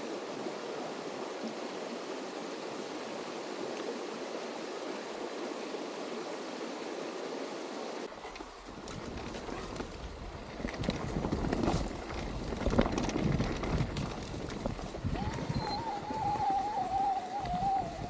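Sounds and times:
bike rattles and knocks: 0:08.2 - 0:15.1
wind on microphone: 0:08.6 - 0:18.0
wavering squeal: 0:15.2 - 0:18.0.

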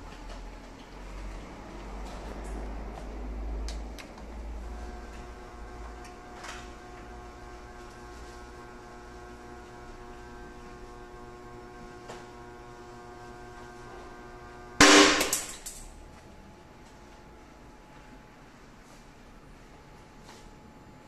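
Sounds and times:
testing machine humming: 0:04.2 - 0:18.1.

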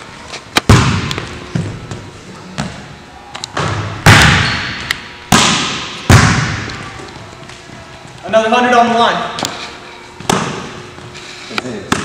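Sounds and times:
basketball bouncing on hardwood floor: 0:00.7 - 0:02.0.

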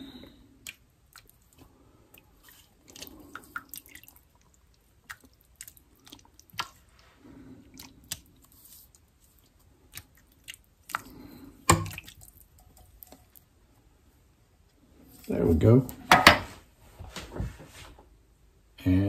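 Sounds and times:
wet squishy sounds: 0:00.0 - 0:13.9.

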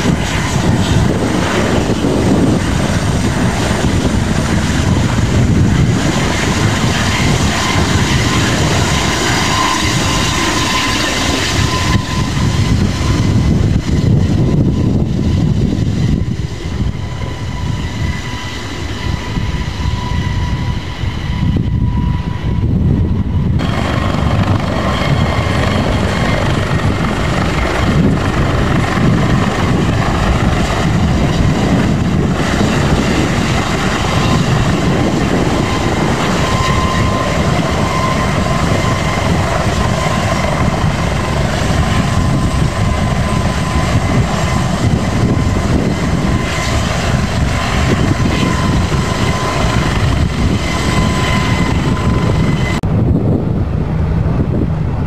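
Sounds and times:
helicopter turbine and rotor noise: 0:00.0 - 0:55.0.

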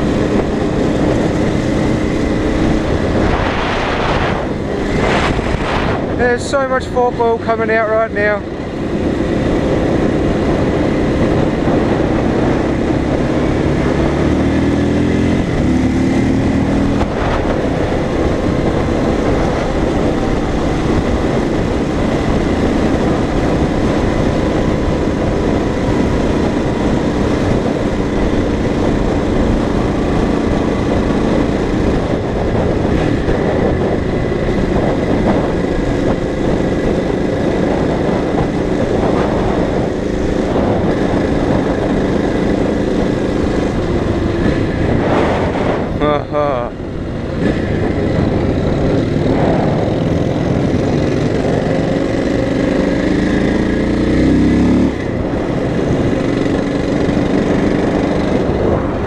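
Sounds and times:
motorcycle engine accelerating: 0:00.0 - 0:59.0
wind noise: 0:00.0 - 0:59.0.

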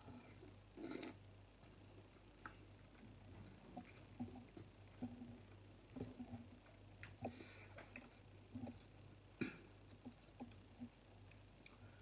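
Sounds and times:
soft chewing and mouth clicks: 0:00.0 - 0:12.0.

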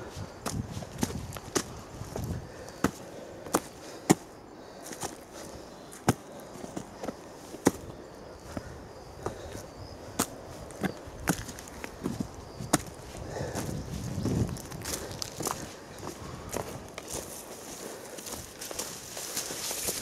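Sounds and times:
footsteps on dry leaves: 0:10.5 - 0:20.0.

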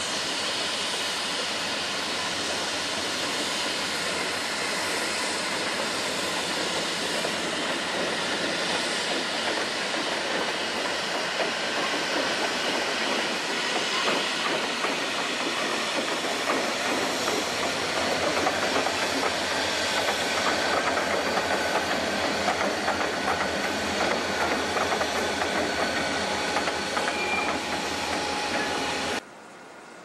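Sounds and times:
diesel locomotive engine noise: 0:00.0 - 0:30.0
wheels clicking over rail joints: 0:06.4 - 0:29.2.

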